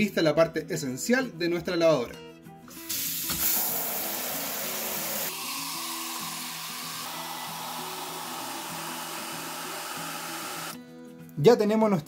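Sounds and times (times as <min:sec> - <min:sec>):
shower head spraying water into bucket: 0:02.7 - 0:10.8.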